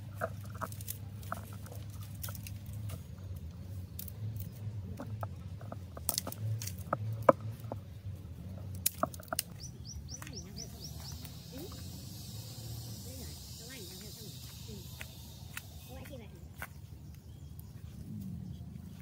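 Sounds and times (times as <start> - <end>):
steady low hum: 0.0 - 19.0
sharp clicks and cracks: 0.2 - 7.7, 8.6 - 10.4
bird chirping: 8.5 - 19.0.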